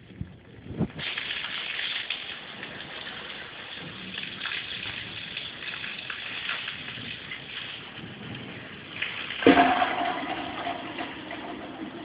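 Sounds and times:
water dripping on leaves: 0:01.0 - 0:09.5
loud sound with steady hum: 0:09.4 - 0:12.0.

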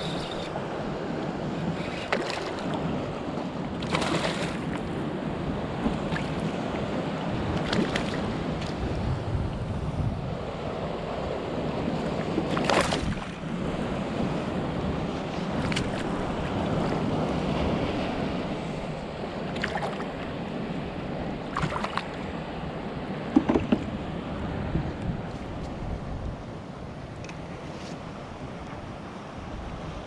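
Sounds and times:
water around a kayak: 0:00.0 - 0:30.0
wind: 0:00.0 - 0:30.0
water splashes and knocks: 0:02.0 - 0:02.8, 0:03.8 - 0:04.9, 0:05.8 - 0:06.5, 0:07.5 - 0:08.8, 0:12.2 - 0:13.4, 0:15.4 - 0:17.0, 0:19.5 - 0:20.1, 0:21.5 - 0:22.2, 0:23.3 - 0:24.0.

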